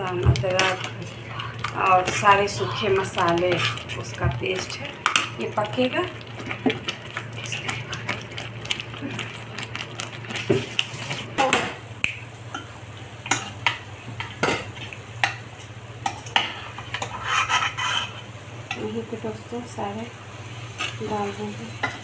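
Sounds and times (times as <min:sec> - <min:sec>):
ladle scraping a pan: 0:16.1 - 0:18.3.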